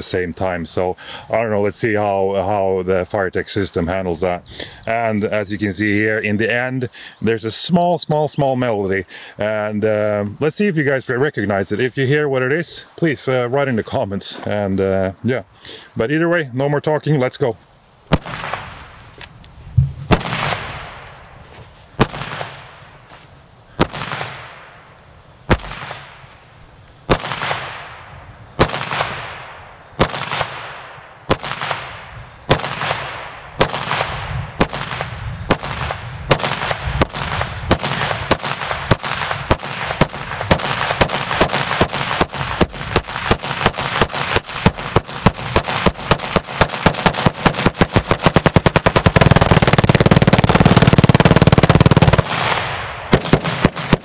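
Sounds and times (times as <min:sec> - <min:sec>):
sharp bangs with echo: 0:18.1 - 0:18.8, 0:19.8 - 0:21.2, 0:22.0 - 0:22.8, 0:23.8 - 0:24.8, 0:25.5 - 0:26.2, 0:27.1 - 0:54.0.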